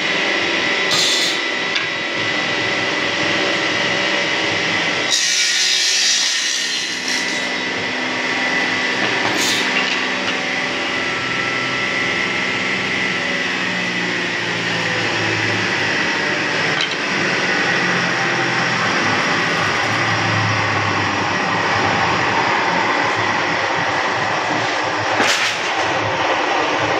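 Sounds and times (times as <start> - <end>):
table saw motor hum and whine: 0.0 - 26.9
saw blade cutting wood: 0.9 - 1.5, 5.0 - 7.8, 8.6 - 10.8.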